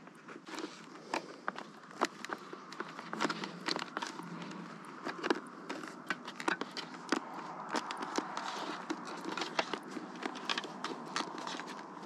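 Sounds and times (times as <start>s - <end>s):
plastic clicks and rustling: 0.0s - 12.0s.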